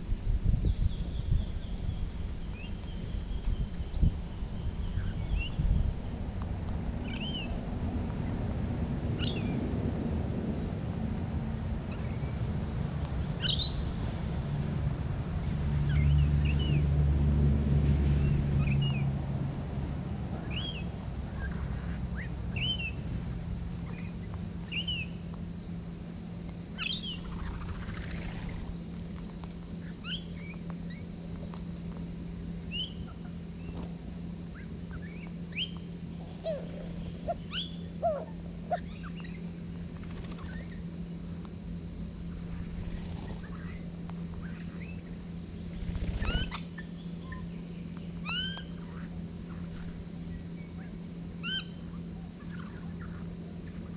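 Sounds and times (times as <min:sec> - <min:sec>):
steady high hum: 0:00.0 - 0:53.9
birds chirping and calling: 0:00.6 - 0:05.8, 0:07.0 - 0:08.4, 0:11.9 - 0:12.4, 0:13.3 - 0:14.0, 0:15.7 - 0:16.9, 0:20.4 - 0:23.0, 0:26.8 - 0:28.7, 0:29.8 - 0:31.1, 0:32.7 - 0:40.9, 0:42.3 - 0:47.6, 0:48.2 - 0:53.9.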